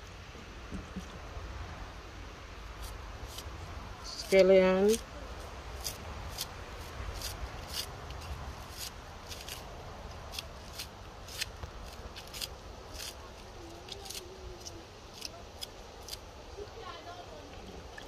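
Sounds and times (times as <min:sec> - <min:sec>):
knife slicing scallion: 0:05.8 - 0:06.5, 0:07.1 - 0:09.6.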